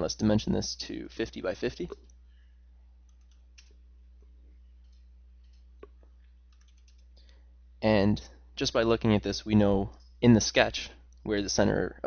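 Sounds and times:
steady low hum: 0.0s - 12.0s
computer mouse clicks: 3.0s - 3.8s, 4.8s - 7.3s
keyboard keystrokes: 4.8s - 7.1s.

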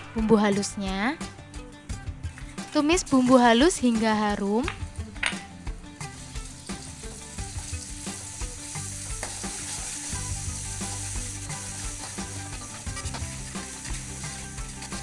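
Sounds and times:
spice paste sizzling in oil: 2.3s - 4.4s, 5.8s - 15.0s
metal spoon scraping pan: 11.8s - 15.0s.

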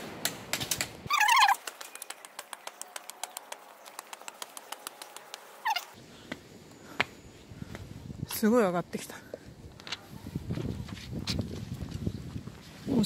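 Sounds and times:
bird shrill call: 1.1s - 1.6s, 5.6s - 6.0s
footsteps on concrete steps: 6.2s - 7.9s, 9.2s - 12.8s.

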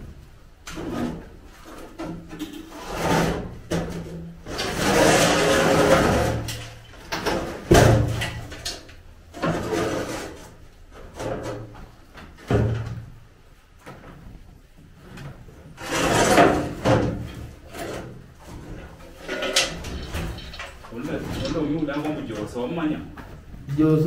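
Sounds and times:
wooden knocks and creaks: 15.0s - 23.5s.

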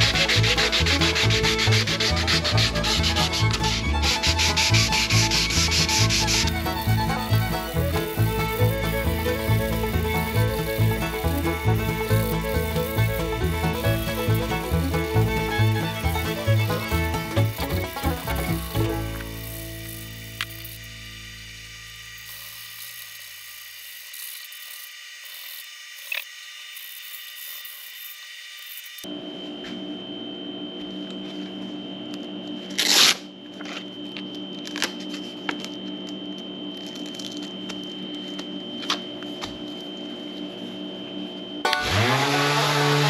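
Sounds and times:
high-speed power tool whining: 0.0s - 29.1s, 41.6s - 43.0s.

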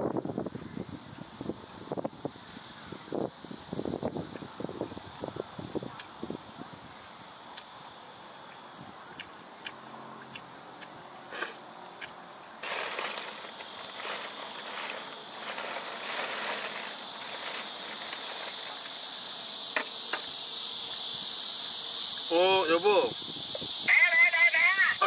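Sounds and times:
cicadas buzzing: 0.0s - 25.0s
plastic bag rustling: 12.6s - 19.2s.

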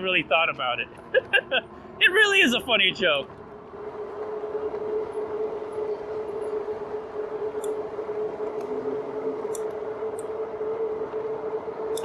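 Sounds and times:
rolling road noise: 0.0s - 12.0s
electric motor whine: 3.7s - 12.0s.

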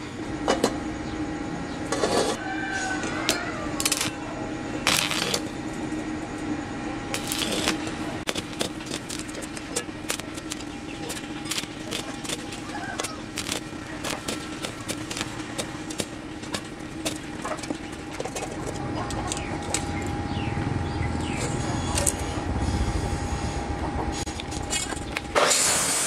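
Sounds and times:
steady hum: 0.0s - 26.0s
welding arc crackling: 3.1s - 6.0s, 7.1s - 20.1s.

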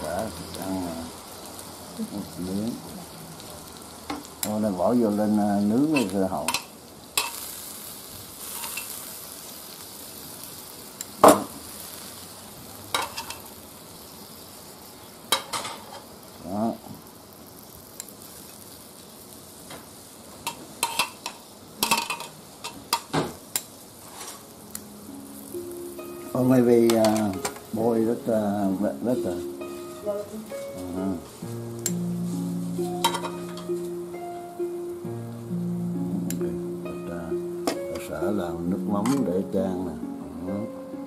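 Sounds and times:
food sizzling in oil: 0.0s - 41.0s
tongs clicking against pan: 5.9s - 7.4s, 20.4s - 23.7s, 26.8s - 27.7s, 31.8s - 32.0s.

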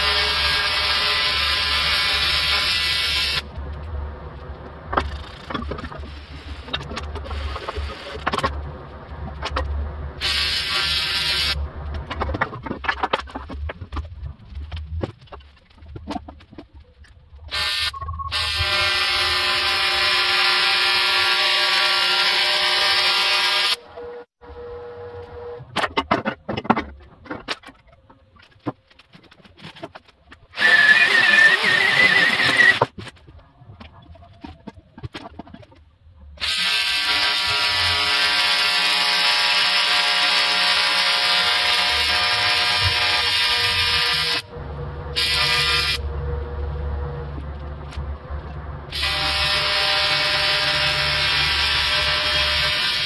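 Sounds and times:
angle grinder grinding metal: 30.6s - 32.9s, 48.9s - 53.0s
steady low hum: 44.4s - 49.7s.

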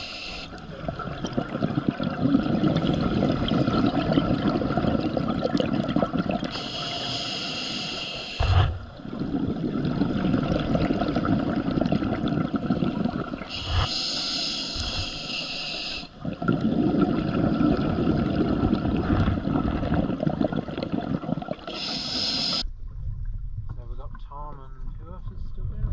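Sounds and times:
regulator hissing inhalations: 0.0s - 0.6s, 6.5s - 8.7s, 13.4s - 16.2s, 21.6s - 22.6s
exhaled bubbles churning: 0.0s - 22.6s.

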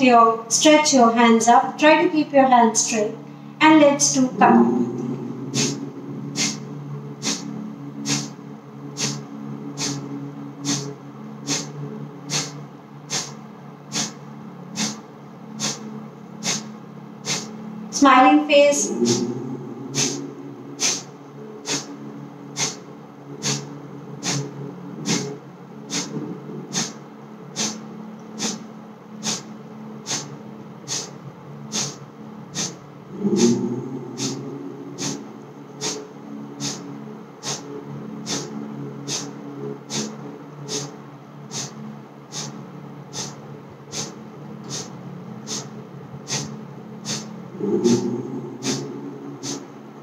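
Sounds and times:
low hum: 0.0s - 50.0s
low rumble: 3.7s - 12.2s, 16.9s - 28.2s, 31.7s - 38.9s, 47.4s - 50.0s
forceful nasal exhalations: 4.3s - 8.4s, 9.0s - 10.9s, 11.5s - 14.2s, 14.8s - 15.0s, 15.6s - 17.6s, 18.8s - 22.0s, 22.6s - 27.0s, 27.6s - 28.6s, 29.2s - 30.3s, 30.9s - 45.7s, 46.3s - 49.8s.

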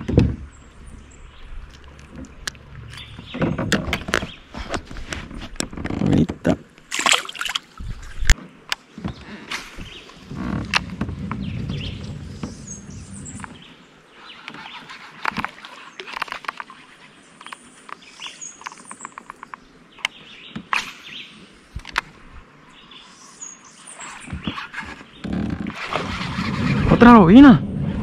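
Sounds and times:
birds chirping: 0.0s - 4.8s, 7.0s - 27.5s
low rumble: 26.4s - 28.0s.

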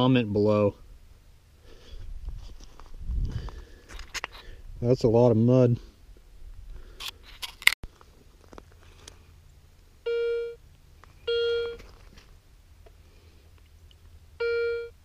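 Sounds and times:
metal detector beeps: 10.1s - 10.6s, 11.2s - 11.8s, 14.4s - 15.0s.

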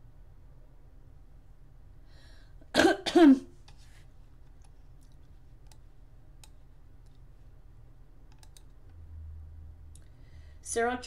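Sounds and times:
low steady hum: 0.0s - 11.0s
computer mouse clicks: 4.4s - 7.2s, 8.2s - 9.0s, 9.9s - 10.2s.

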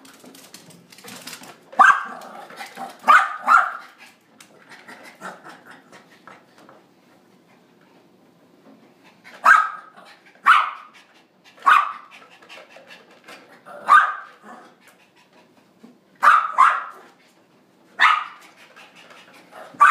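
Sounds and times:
puppy barking: 1.8s - 2.2s, 3.0s - 3.9s, 9.4s - 10.9s, 11.6s - 12.1s, 13.8s - 14.4s, 16.2s - 17.1s, 18.0s - 18.4s.

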